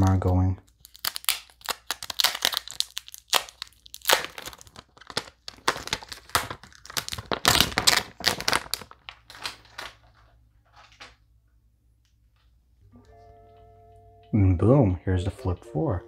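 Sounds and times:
wrapping crinkling: 0.0s - 11.2s.

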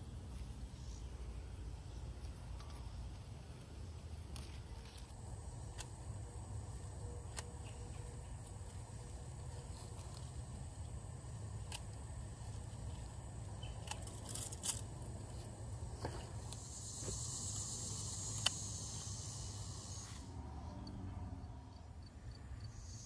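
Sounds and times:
leaves rustling: 2.1s - 20.3s
pruning shears snipping: 9.4s - 16.7s.

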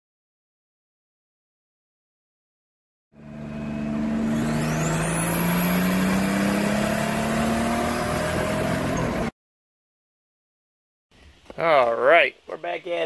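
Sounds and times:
car engine running: 3.2s - 9.3s.

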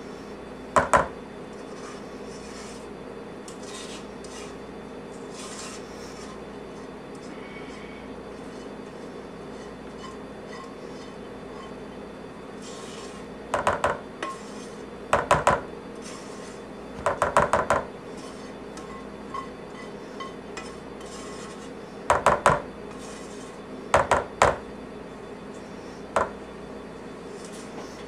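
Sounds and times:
spoon scraping thick mixture: 1.5s - 13.5s, 14.1s - 15.1s, 15.9s - 16.8s, 18.0s - 22.1s, 22.9s - 23.8s.

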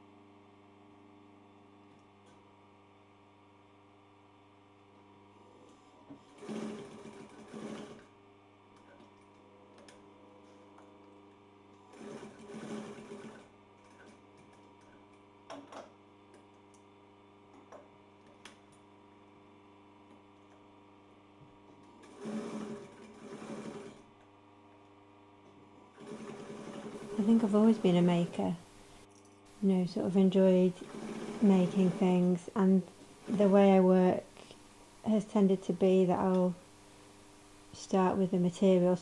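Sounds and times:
sewing machine stitching: 6.2s - 8.2s, 11.8s - 15.1s, 21.8s - 24.1s, 25.9s - 28.6s, 30.3s - 32.4s
steady hum: 25.0s - 39.0s.

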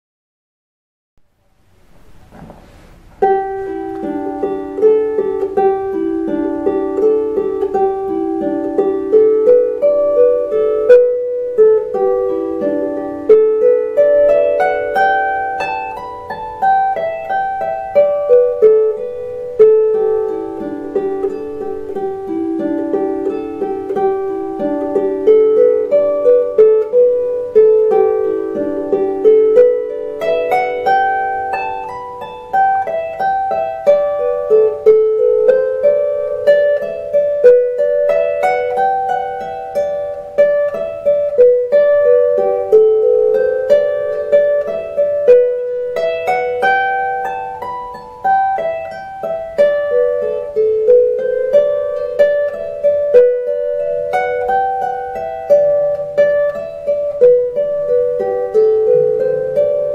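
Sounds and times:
harp playing a jig: 1.3s - 59.9s.

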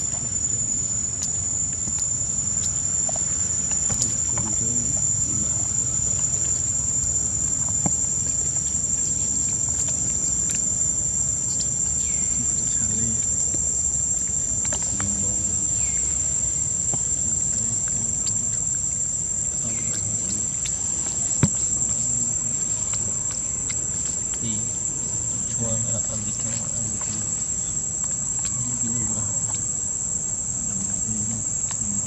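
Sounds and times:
insects shrilling: 0.0s - 32.0s.

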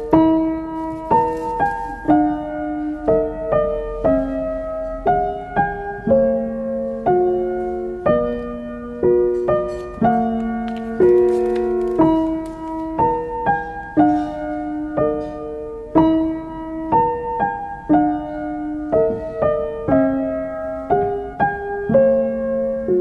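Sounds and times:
slow gentle piano melody: 0.0s - 23.0s.

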